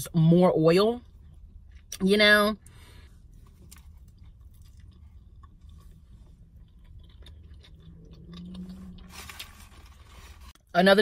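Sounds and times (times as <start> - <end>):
low closed-mouth hum: 0.0 - 11.0
faint chewing: 2.6 - 10.0
biting crunchy sandwich: 3.4 - 10.1.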